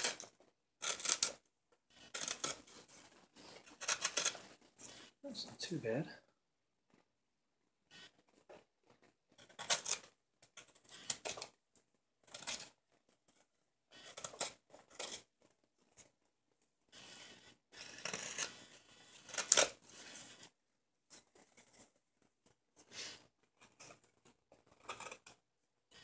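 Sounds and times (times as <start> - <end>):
knife scraping wood: 0.0 - 1.3, 2.0 - 5.1, 17.0 - 20.5, 24.7 - 25.3.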